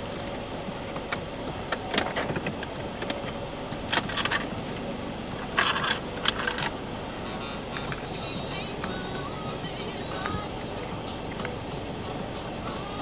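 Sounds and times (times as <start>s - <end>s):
car cabin hum: 0.0s - 13.0s.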